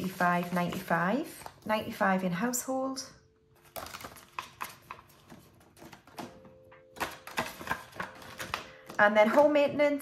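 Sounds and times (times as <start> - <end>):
banknotes and envelopes crinkling: 3.6 - 9.8.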